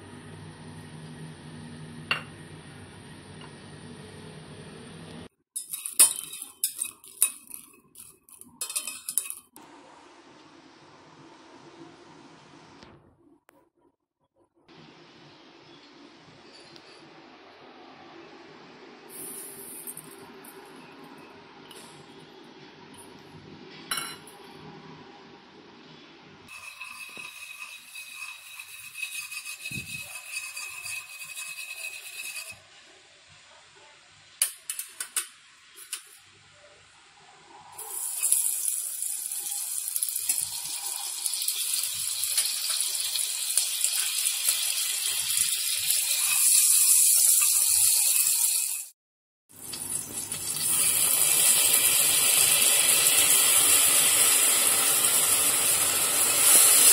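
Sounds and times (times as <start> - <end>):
liquid sizzling in hot caramel: 37.7 - 56.9.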